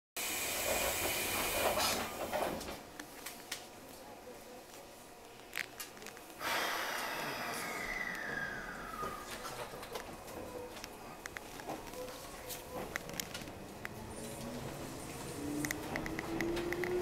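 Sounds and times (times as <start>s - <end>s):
air hiss: 6.4s - 8.6s
muffled voices: 7.0s - 16.0s.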